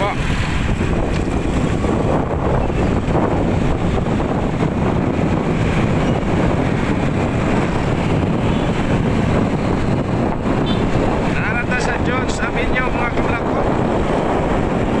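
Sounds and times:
motorcycle engine: 0.0s - 11.4s
road noise: 0.0s - 15.0s
wind rushing over microphone: 0.0s - 15.0s.

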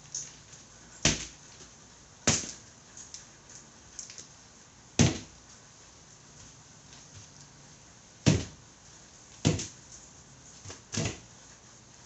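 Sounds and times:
tire bouncing on cardboard: 1.0s - 2.6s, 4.9s - 5.4s, 8.2s - 8.6s, 9.4s - 9.8s, 10.6s - 11.3s.

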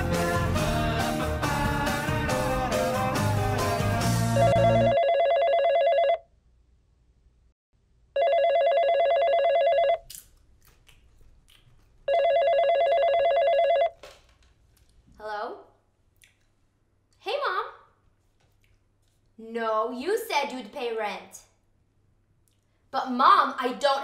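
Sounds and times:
rock music: 0.0s - 4.8s
telephone ringing: 4.4s - 6.3s, 8.2s - 10.0s, 12.1s - 14.0s.

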